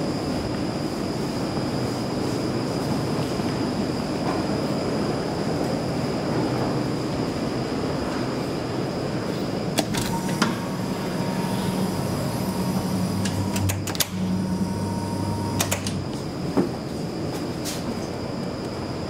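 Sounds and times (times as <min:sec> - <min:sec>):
elevator low hum and rumble: 0:00.0 - 0:19.0
button and door clicks: 0:13.2 - 0:14.2, 0:15.5 - 0:16.0.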